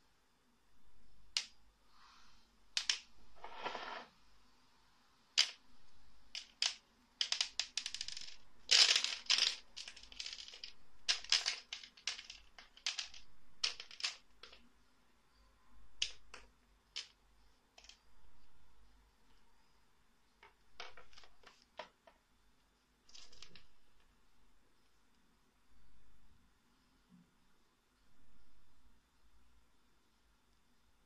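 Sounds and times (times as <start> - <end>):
capsules rattling: 6.3 - 14.6
capsules clattering on wooden floor: 6.4 - 14.6.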